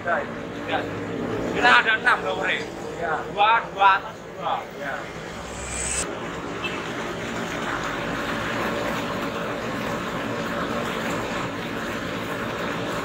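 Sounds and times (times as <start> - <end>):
electric blower rushing drone: 4.6 - 6.2.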